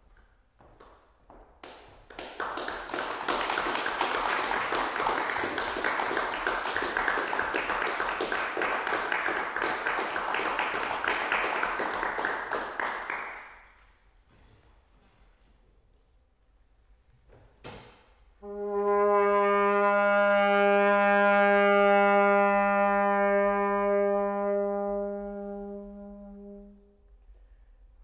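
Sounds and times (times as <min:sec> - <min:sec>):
audience applauding: 0:01.6 - 0:13.8.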